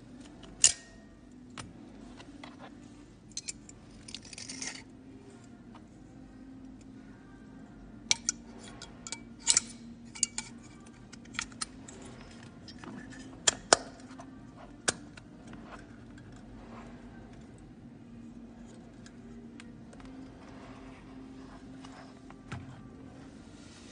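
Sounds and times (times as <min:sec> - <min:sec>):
faint low hum: 0:00.0 - 0:23.9
metal clips clinking against housing: 0:00.5 - 0:00.9, 0:03.3 - 0:04.9, 0:08.1 - 0:08.4, 0:09.0 - 0:14.2.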